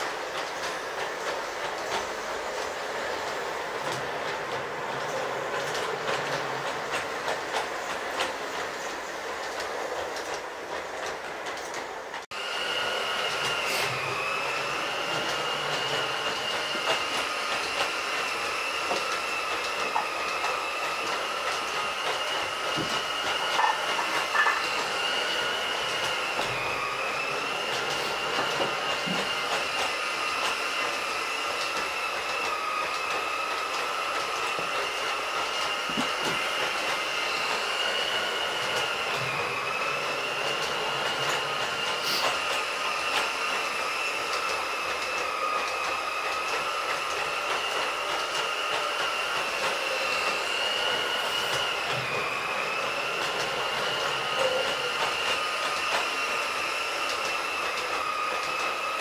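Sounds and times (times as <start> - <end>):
model train motor whine: 12.6 - 59.0.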